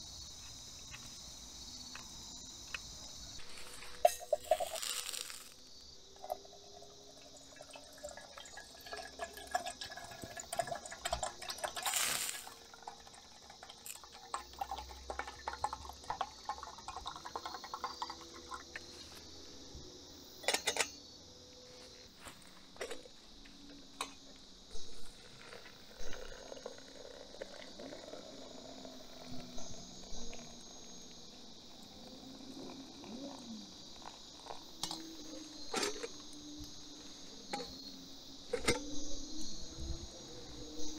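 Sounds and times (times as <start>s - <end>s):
crickets chirping: 0.0s - 40.9s
water pouring into metal kettle: 3.4s - 19.0s, 24.8s - 36.8s.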